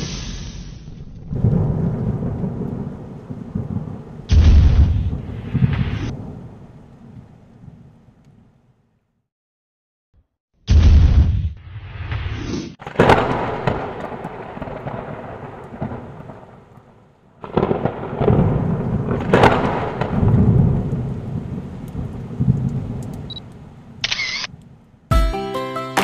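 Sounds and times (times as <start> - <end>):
thunder rolling: 0.9 - 8.0, 12.8 - 24.0.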